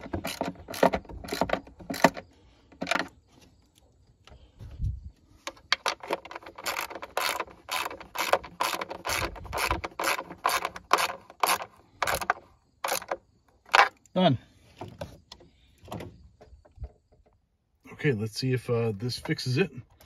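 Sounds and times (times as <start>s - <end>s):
hand ratchet clicking: 5.8s - 13.9s.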